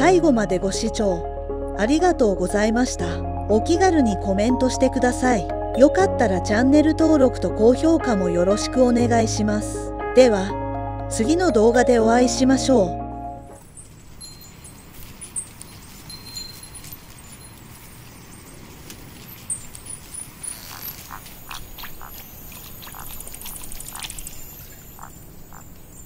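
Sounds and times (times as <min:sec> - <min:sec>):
short animal calls: 0:20.5 - 0:22.2.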